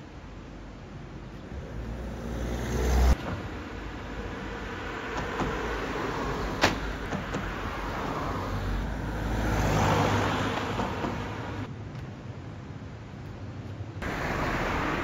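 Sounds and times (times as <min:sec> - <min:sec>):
background traffic: 0:00.0 - 0:15.0
vehicle passing close by: 0:01.5 - 0:03.2, 0:07.8 - 0:11.7.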